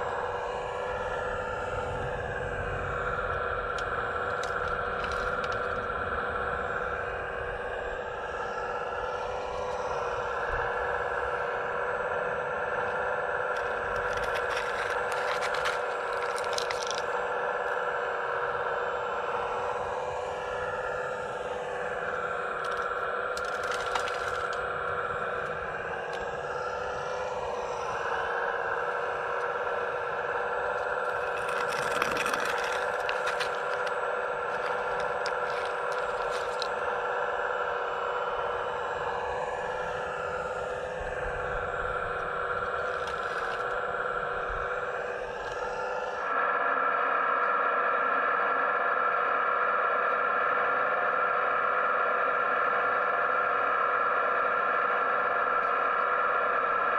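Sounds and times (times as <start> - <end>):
hydraulic pump whining: 0.0 - 56.9
small stones clicking and crunching: 2.6 - 5.9, 13.4 - 17.2, 22.1 - 26.8, 27.9 - 37.3, 42.2 - 43.8
bucket scraping through rubble: 13.6 - 17.1, 30.8 - 36.8.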